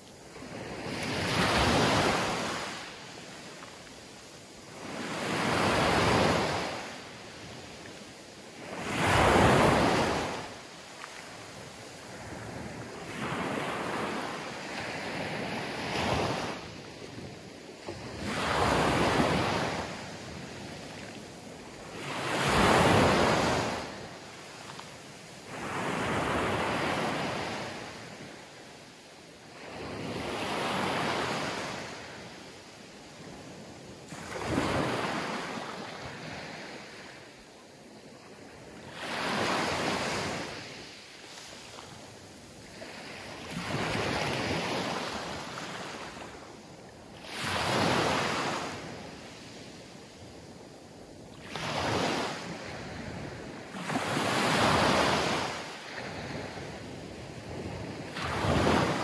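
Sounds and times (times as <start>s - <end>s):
waves washing up pebbly beach: 53.6s - 59.0s.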